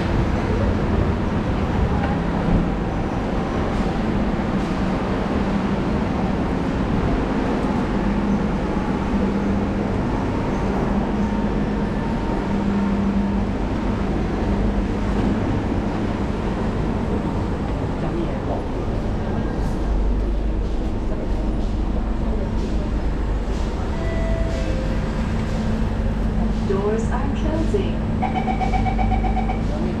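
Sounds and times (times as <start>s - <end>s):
train humming at platform: 0.0s - 30.0s
low steady tone: 28.0s - 30.0s.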